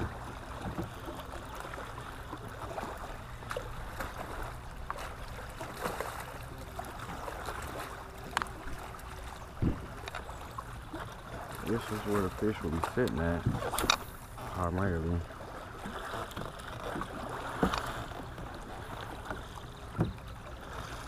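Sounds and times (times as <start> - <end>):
water lapping against hull: 0.0 - 21.0
light knocks on kayak: 19.9 - 20.2.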